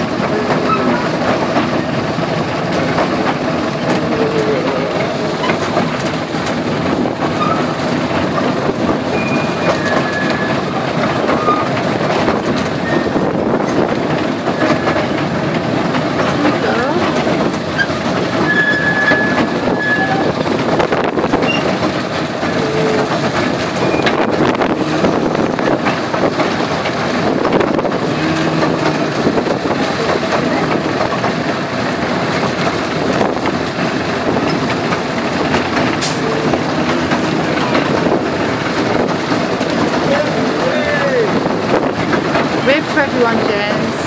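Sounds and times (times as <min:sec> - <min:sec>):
miniature train wheels clattering: 0:00.0 - 0:44.0
short high squeal: 0:18.4 - 0:20.3.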